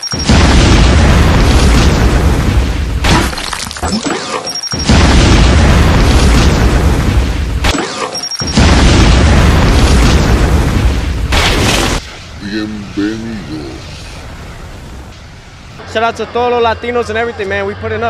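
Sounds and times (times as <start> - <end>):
explosion booms with deep rumble: 0.2 - 3.4, 4.8 - 7.7, 8.5 - 12.4.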